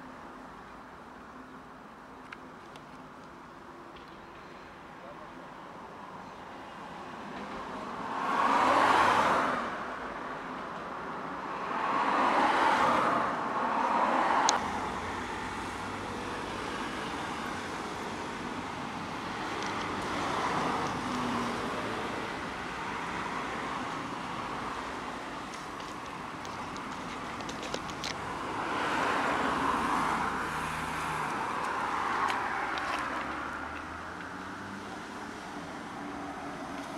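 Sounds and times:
steady traffic hum: 0:00.0 - 0:36.9
cars passing: 0:02.4 - 0:36.9.

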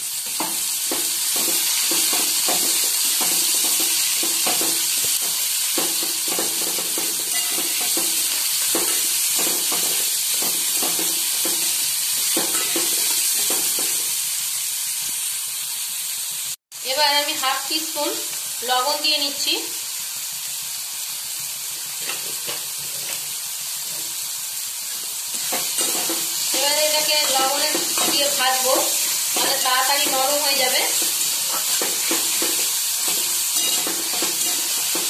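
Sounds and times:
vegetables sizzling in hot oil: 0:00.0 - 0:35.0
spatula scraping metal pan: 0:07.0 - 0:09.0, 0:25.3 - 0:35.0.

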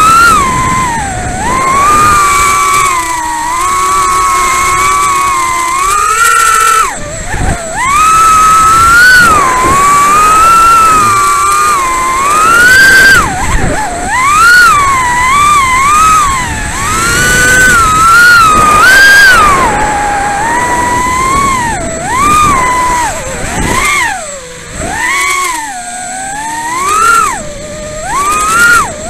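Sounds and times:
quadcopter motors whining: 0:00.0 - 0:29.0.

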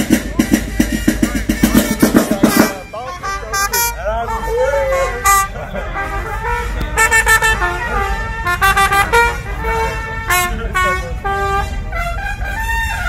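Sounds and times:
marching band brass horns: 0:00.0 - 0:13.0.

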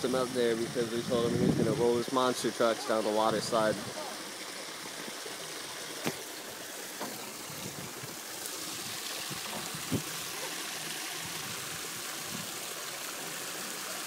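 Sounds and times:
water rushing down a slide: 0:03.3 - 0:14.0.

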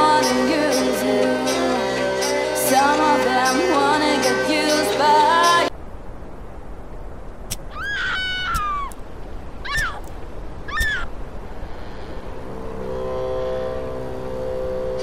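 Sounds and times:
music with long held notes: 0:00.0 - 0:05.7
high animal-like cries: 0:07.6 - 0:09.0, 0:09.6 - 0:10.1, 0:10.7 - 0:11.1
steady low noise: 0:09.0 - 0:15.0.

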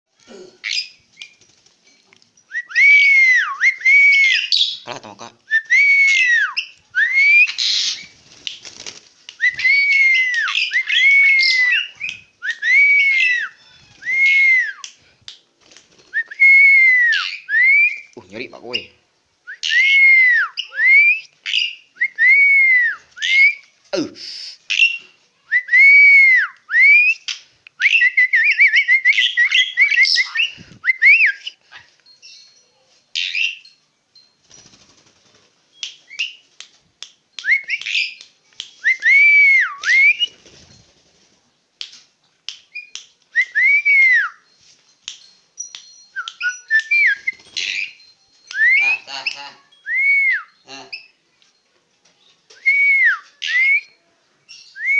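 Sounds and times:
starling whistling song: 0:02.5 - 0:04.8, 0:05.5 - 0:08.2, 0:09.4 - 0:15.0, 0:16.1 - 0:18.2, 0:18.8 - 0:23.7, 0:24.7 - 0:32.5, 0:37.3 - 0:40.6, 0:42.5 - 0:44.6, 0:45.6 - 0:49.1, 0:49.8 - 0:51.2, 0:52.6 - 0:54.9.

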